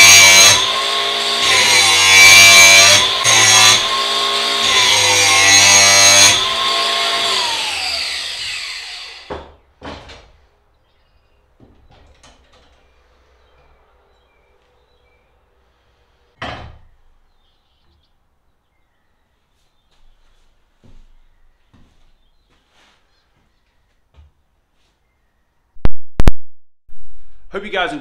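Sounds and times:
angle grinder grinding steel: 0.0 - 9.3.

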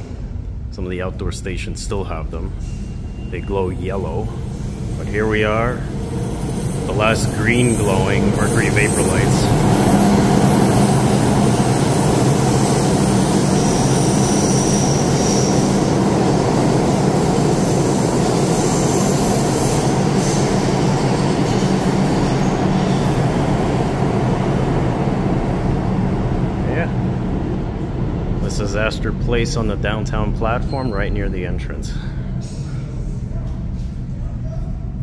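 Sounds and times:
subway train rumbling: 0.0 - 35.0
train wheel squeals: 2.4 - 23.5, 29.8 - 33.2.

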